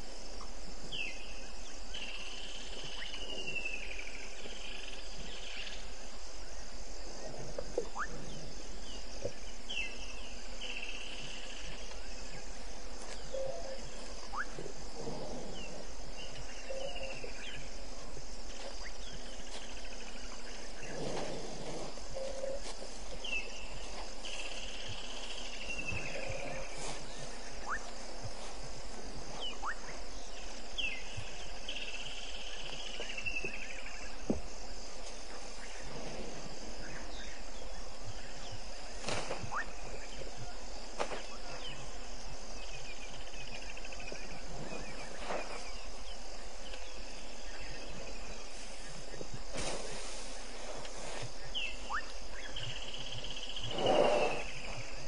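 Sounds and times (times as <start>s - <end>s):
crickets and insects buzzing: 0.0s - 55.0s.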